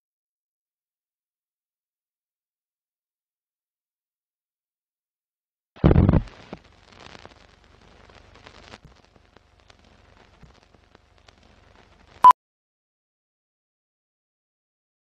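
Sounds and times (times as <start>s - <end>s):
film crackle with clicks: 5.8s - 12.2s.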